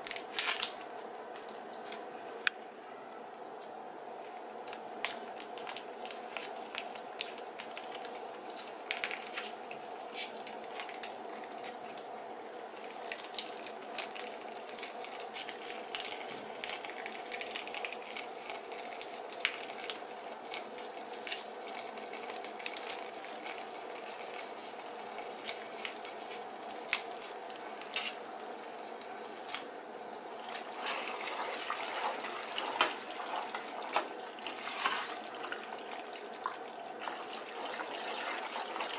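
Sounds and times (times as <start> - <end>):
foil pouch crinkling: 0.0 - 2.1, 4.2 - 29.7
steady hum: 0.0 - 38.9
thick squelching of pasta stirred: 5.1 - 29.5, 30.3 - 38.9.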